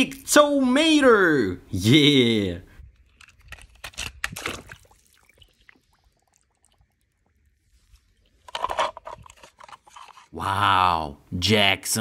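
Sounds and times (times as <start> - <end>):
pool water lapping and dripping: 4.3 - 8.5
plastic toy truck clattering on stone: 8.4 - 10.3.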